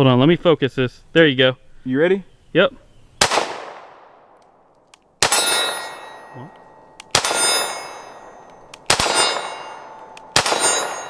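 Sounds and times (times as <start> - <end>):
pistol shots: 3.2 - 4.6, 5.2 - 11.0
steel target clanging: 5.2 - 11.0.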